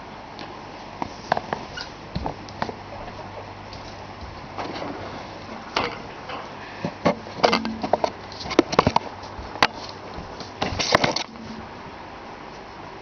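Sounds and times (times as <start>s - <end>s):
guinea pig knocking and rustling: 7.0s - 11.7s.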